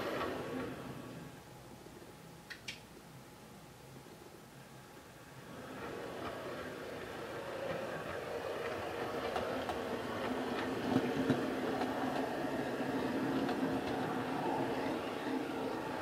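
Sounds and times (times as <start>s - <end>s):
model train motor hum: 5.4s - 16.0s
wheels clicking on track: 5.5s - 16.0s.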